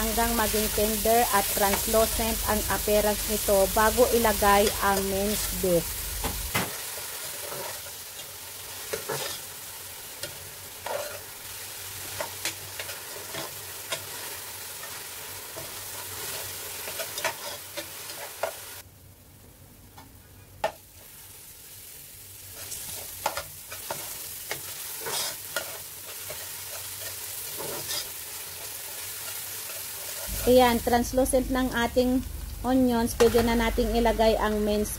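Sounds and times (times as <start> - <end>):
onions sizzling in hot oil: 0.0 - 18.8, 20.6 - 34.9.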